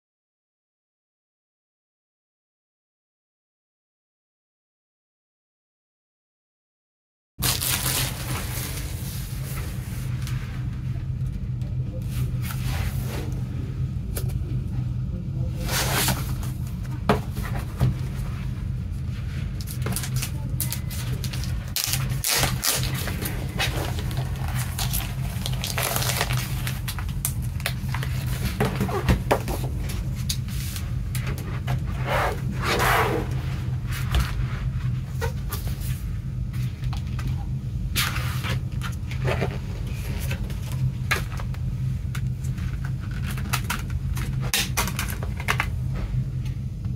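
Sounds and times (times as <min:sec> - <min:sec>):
plastic wrap crinkling: 0:07.4 - 0:09.8, 0:19.6 - 0:30.4
steady low hum: 0:07.4 - 0:46.9.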